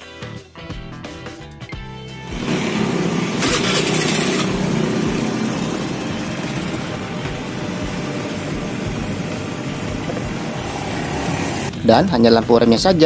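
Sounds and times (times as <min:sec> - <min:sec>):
scooter engine idling: 0:02.2 - 0:11.9.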